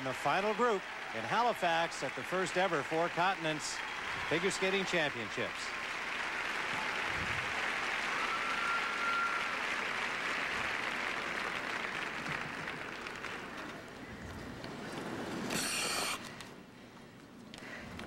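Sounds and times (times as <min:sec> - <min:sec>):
crowd applauding: 0:00.0 - 0:16.2.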